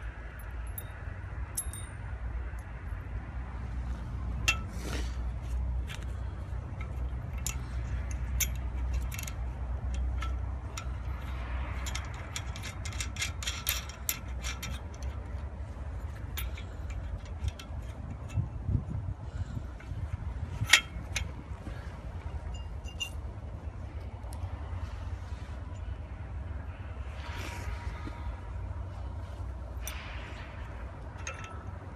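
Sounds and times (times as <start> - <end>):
metallic clicks of spanner and nut: 0.0 - 2.9, 4.4 - 23.2, 29.7 - 31.9
low steady rumble: 0.0 - 31.9.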